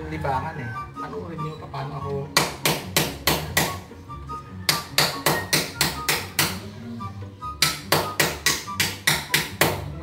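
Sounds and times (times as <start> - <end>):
hammer striking chisel: 2.4 - 3.9, 4.7 - 6.7, 7.6 - 9.9.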